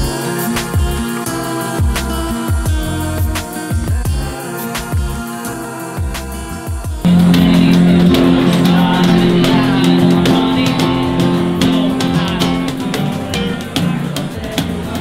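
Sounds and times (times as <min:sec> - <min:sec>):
guitar band music: 0:06.1 - 0:15.0.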